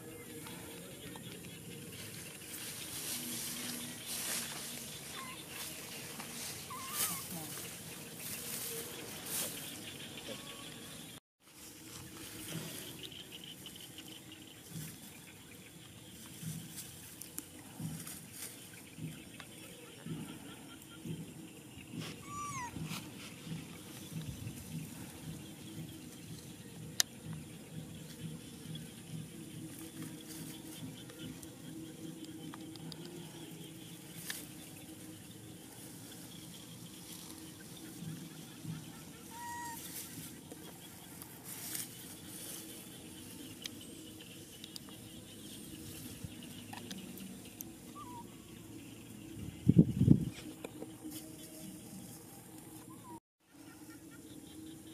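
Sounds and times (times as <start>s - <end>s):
faint rustling in grass: 0.1s - 10.8s, 11.4s - 20.6s, 21.9s - 48.4s
monkey squeaky call: 5.1s - 5.4s, 6.7s - 7.3s, 22.2s - 22.8s, 38.9s - 39.9s, 48.0s - 48.3s.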